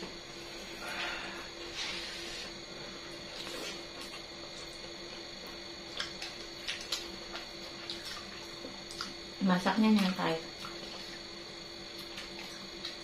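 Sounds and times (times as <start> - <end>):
person chewing food: 1.6 - 9.3, 10.5 - 13.0.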